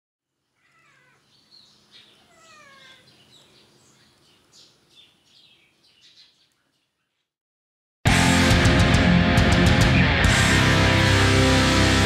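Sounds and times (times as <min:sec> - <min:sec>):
small birds chirping: 0:00.3 - 0:07.4
cat meowing: 0:00.6 - 0:01.3, 0:02.1 - 0:03.2.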